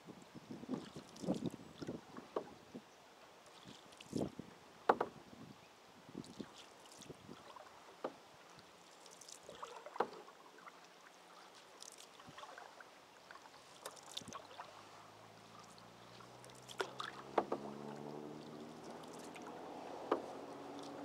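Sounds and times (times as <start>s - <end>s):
paddle splashes and drips: 0.6s - 5.2s, 6.1s - 21.0s
motor vehicle hum: 14.8s - 21.0s
light knocks: 17.2s - 17.9s, 20.0s - 20.4s.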